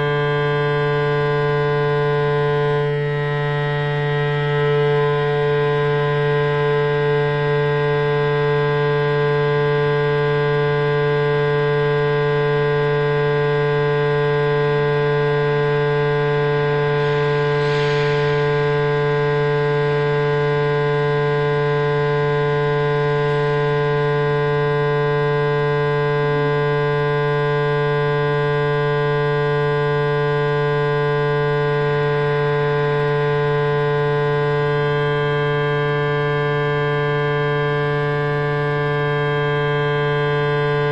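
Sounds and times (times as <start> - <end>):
loud electronic drone hum: 0.0 - 40.9.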